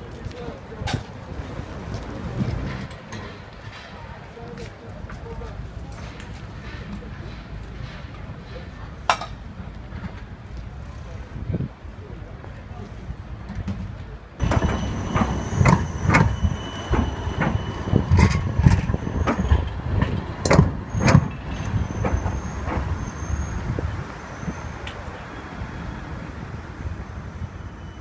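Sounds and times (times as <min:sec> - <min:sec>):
tram wheels knocking on rail joints: 0:02.0 - 0:10.4, 0:13.4 - 0:25.1
faint high wheel squeal: 0:14.4 - 0:28.0.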